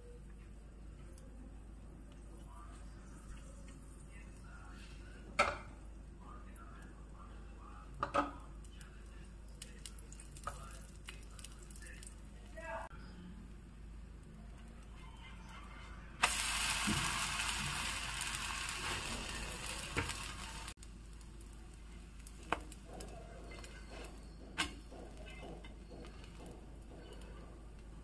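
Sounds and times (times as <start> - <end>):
loud sizzle on a hot pan: 16.2 - 26.7.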